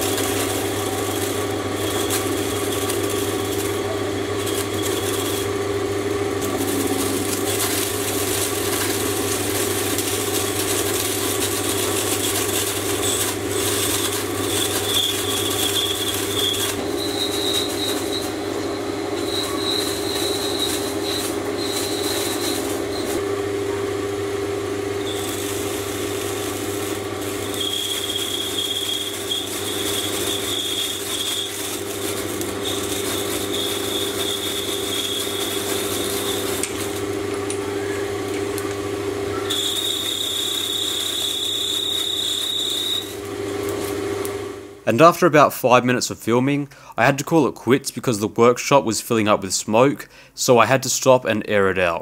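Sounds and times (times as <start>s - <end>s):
lathe motor hum: 0.0s - 44.8s
tool scraping metal rod: 9.9s - 23.2s, 26.2s - 36.9s
high squeal: 11.2s - 23.2s, 25.0s - 36.6s, 39.3s - 43.2s.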